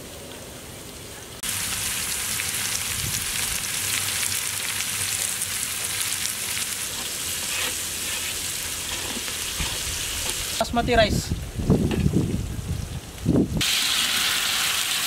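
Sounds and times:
vegetables sizzling in a pot: 0:01.4 - 0:10.6, 0:13.6 - 0:15.0.

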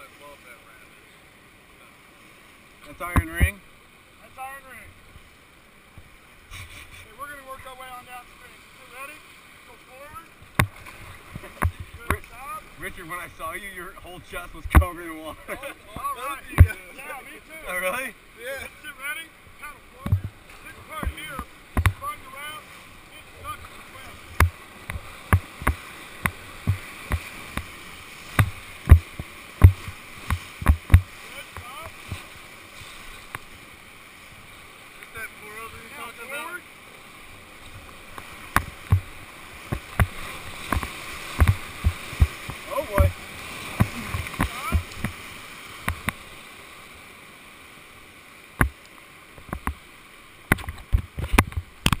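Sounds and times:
rushing water: 0:00.0 - 0:52.0
paddle and wave thumps on raft: 0:02.1 - 0:52.0
sharp knocks and thumps: 0:10.5 - 0:12.2, 0:20.0 - 0:20.4, 0:21.0 - 0:22.0, 0:24.3 - 0:27.7, 0:28.3 - 0:32.3, 0:38.5 - 0:39.1, 0:39.7 - 0:45.2, 0:49.4 - 0:49.8, 0:50.5 - 0:52.0.

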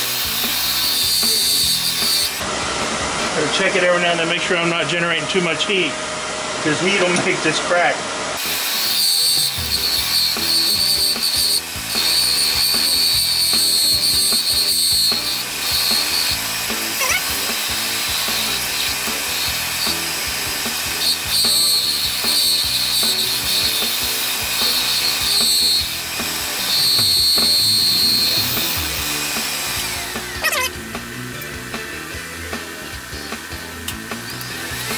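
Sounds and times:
lathe tool cutting wood: 0:00.0 - 0:03.9, 0:08.2 - 0:34.9
background music: 0:09.4 - 0:34.9.

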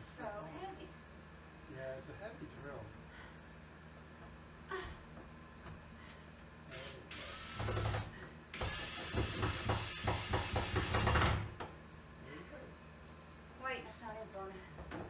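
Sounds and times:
power drill running: 0:06.7 - 0:11.5
drill clicking: 0:06.8 - 0:11.2.

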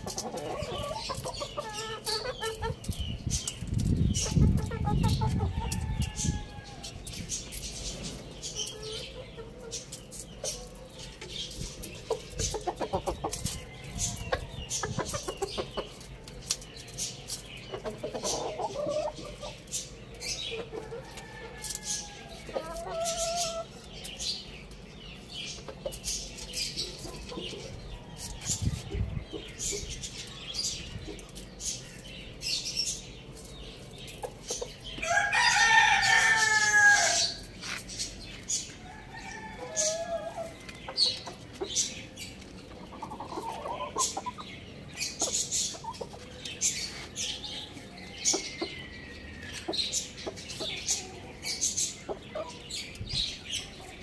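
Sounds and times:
young roosters clucking: 0:00.0 - 0:54.0
rooster crowing: 0:35.0 - 0:37.2.

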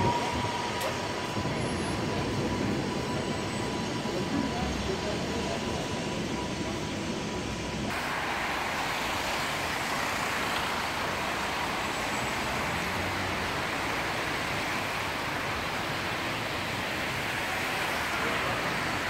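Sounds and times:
car tyres hissing on wet road: 0:07.9 - 0:19.0.

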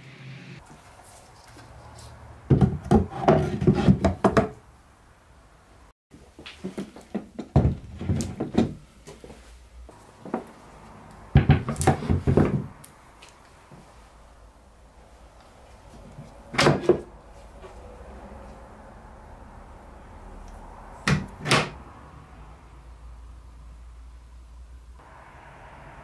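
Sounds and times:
wood scraping and knocking: 0:02.5 - 0:04.6, 0:06.5 - 0:08.8, 0:11.4 - 0:12.8.

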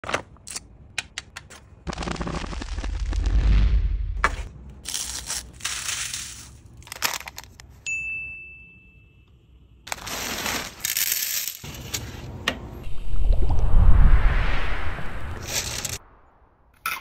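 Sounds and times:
deep rushing swell: 0:12.8 - 0:16.7.

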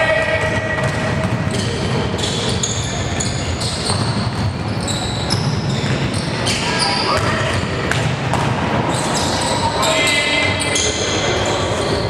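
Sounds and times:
gym background noise: 0:00.0 - 0:12.0
basketball dribbling: 0:00.2 - 0:06.4
shoes squeaking on gym floor: 0:01.5 - 0:07.9, 0:08.9 - 0:12.0.

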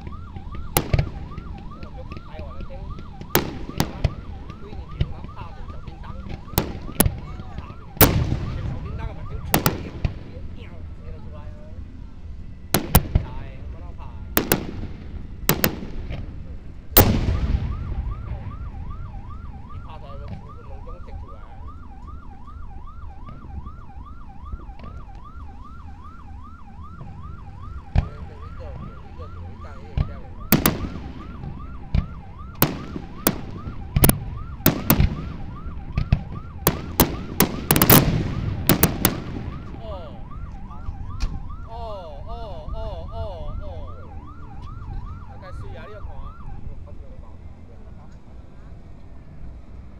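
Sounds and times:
fireworks bursting with bangs: 0:00.0 - 0:10.4, 0:12.8 - 0:13.4, 0:14.4 - 0:18.6, 0:30.0 - 0:39.9
electronic alarm wailing: 0:17.0 - 0:46.5.

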